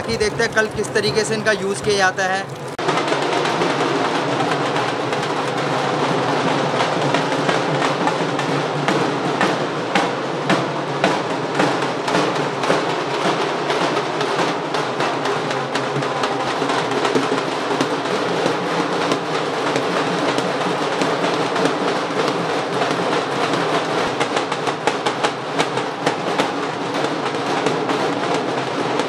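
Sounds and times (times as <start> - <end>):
crowd din: 0.0 - 2.5
drums beaten with sticks: 0.0 - 29.0.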